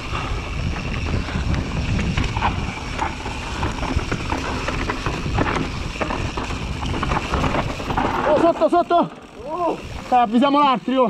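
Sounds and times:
wind buffeting microphone: 0:00.0 - 0:08.4
bike rattling and knocking: 0:00.0 - 0:11.0
bike tyres rumbling over dirt: 0:00.0 - 0:11.0.

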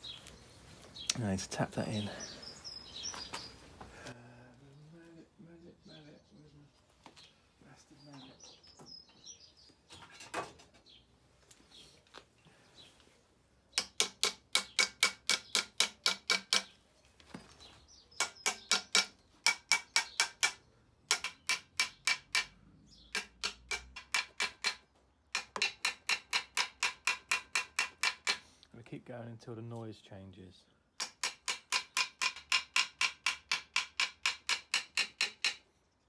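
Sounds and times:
hammer tapping metal bearing: 0:18.2 - 0:24.8, 0:31.0 - 0:35.6.

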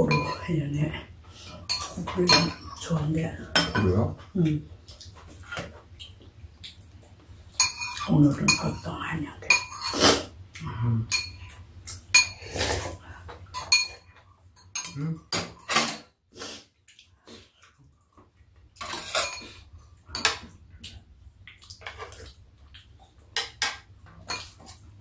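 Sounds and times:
spoons clinking on ceramic bowls: 0:00.0 - 0:00.5, 0:01.7 - 0:02.8, 0:03.5 - 0:04.0, 0:07.6 - 0:08.9, 0:09.5 - 0:10.0, 0:11.1 - 0:11.5, 0:12.1 - 0:12.5, 0:13.5 - 0:16.0, 0:18.8 - 0:19.6
chopsticks scraping a frying pan: 0:09.6 - 0:10.3, 0:12.2 - 0:13.0.

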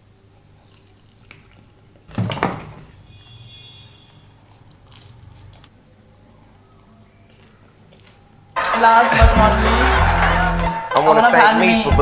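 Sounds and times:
chewing and mouth sounds: 0:04.4 - 0:05.8, 0:07.3 - 0:08.4.

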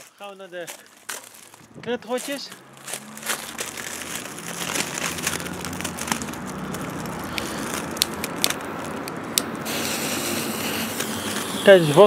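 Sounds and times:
footsteps on gravel: 0:00.0 - 0:09.2.

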